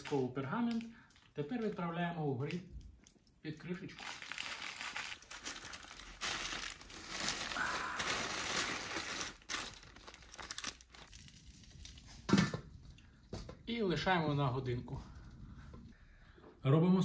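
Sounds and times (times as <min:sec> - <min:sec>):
parchment paper crinkling: 0:00.0 - 0:02.0, 0:03.7 - 0:12.1.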